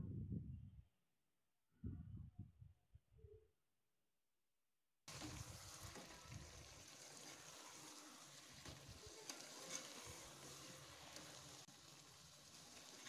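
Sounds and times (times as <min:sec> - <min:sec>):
food sizzling in a pot: 0:05.1 - 0:13.0.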